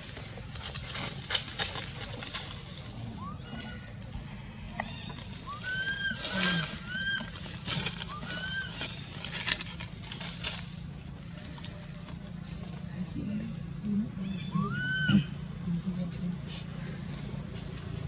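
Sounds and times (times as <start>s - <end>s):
dry leaves crackling and rustling: 0.0s - 13.8s
baby monkey crying: 3.1s - 4.0s, 4.8s - 9.2s, 14.2s - 15.5s.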